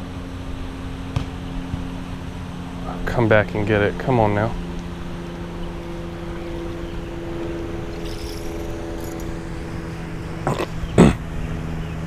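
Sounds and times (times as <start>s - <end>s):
engine-like hum: 0.0s - 12.0s
steady tones: 3.8s - 11.0s.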